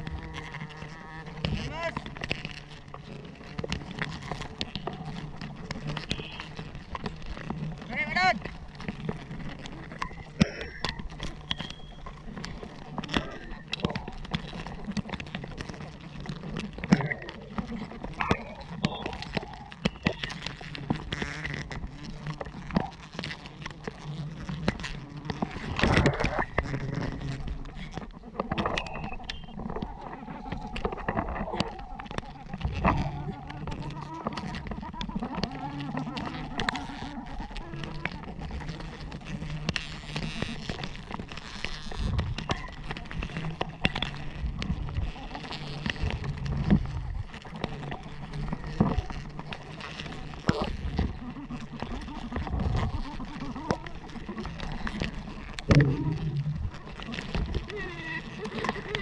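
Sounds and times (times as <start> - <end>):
branches rustling: 0.0 - 59.0
knocks and scrapes against bark: 0.0 - 59.0.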